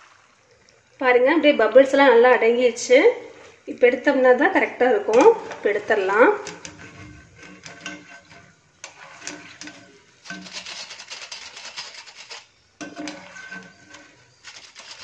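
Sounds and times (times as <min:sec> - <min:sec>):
wire skimmer scraping a pan: 0:05.0 - 0:15.0.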